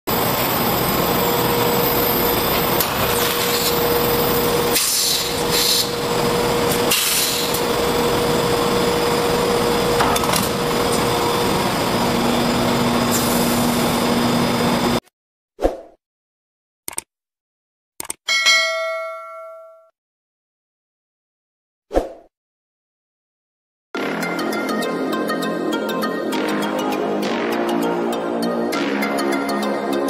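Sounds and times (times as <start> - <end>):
extrusion machine humming: 0.1 - 15.0.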